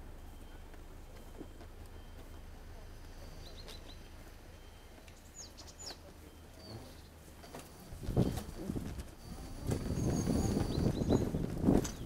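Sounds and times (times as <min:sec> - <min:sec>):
small birds chirping: 0:00.3 - 0:08.6, 0:09.2 - 0:12.0
electric scooter rumble: 0:06.8 - 0:12.0.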